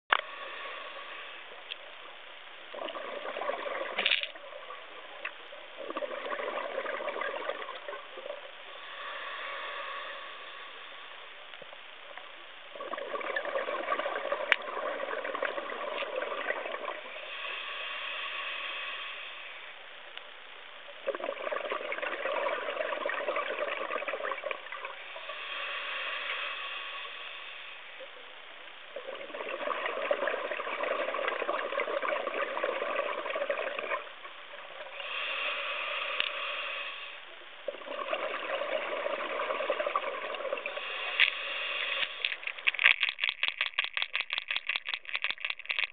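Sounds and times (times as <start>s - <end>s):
hissing regulator inhalations: 0.1s - 1.6s, 8.6s - 11.2s, 17.1s - 19.8s, 25.1s - 28.1s, 34.8s - 37.4s, 38.2s - 43.3s
bubbling underwater exhalations: 2.8s - 4.7s, 5.8s - 8.3s, 12.8s - 17.1s, 21.0s - 24.9s, 29.0s - 34.1s, 37.7s - 41.2s.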